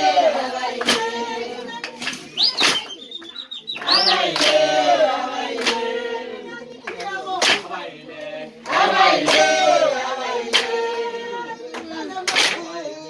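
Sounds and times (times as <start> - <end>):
group of voices singing: 0.0 - 13.0
sharp clap: 0.4 - 6.0, 6.8 - 7.8, 8.6 - 9.7, 10.4 - 10.9, 11.7 - 12.7.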